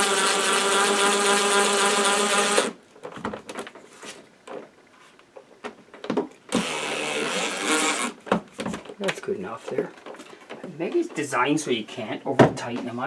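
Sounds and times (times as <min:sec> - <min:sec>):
cordless drill driving a screw: 0:00.0 - 0:02.8, 0:06.5 - 0:08.2.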